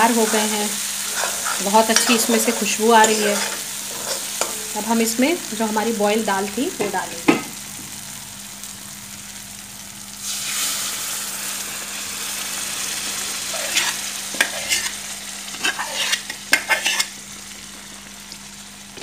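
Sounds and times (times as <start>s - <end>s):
lentils sizzling in hot pan: 0.0s - 19.0s
steel ladle scraping pot: 0.2s - 4.8s, 15.5s - 17.1s.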